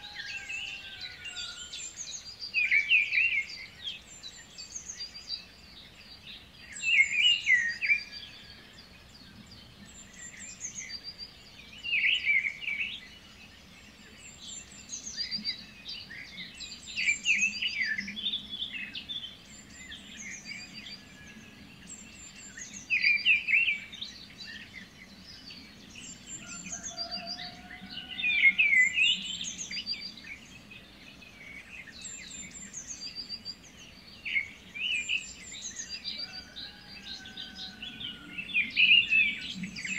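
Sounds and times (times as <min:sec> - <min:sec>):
birds chirping and singing: 0:00.0 - 0:39.9.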